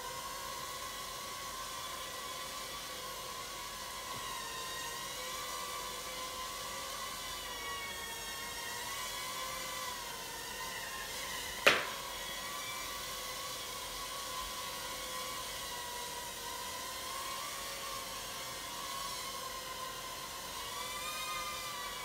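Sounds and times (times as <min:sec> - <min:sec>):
sharp knock: 0:11.6 - 0:12.0.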